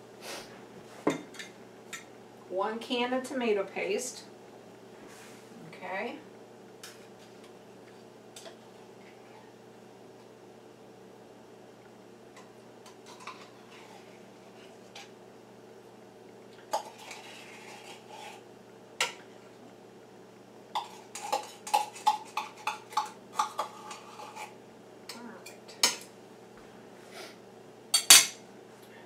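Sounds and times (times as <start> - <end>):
paste scraped into pot: 16.8 - 18.4, 23.6 - 24.6.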